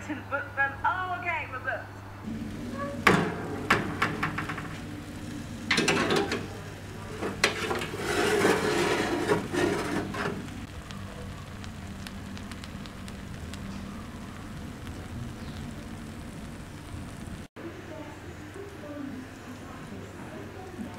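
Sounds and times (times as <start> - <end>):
metal tray lifter clanking and scraping: 5.7 - 10.6.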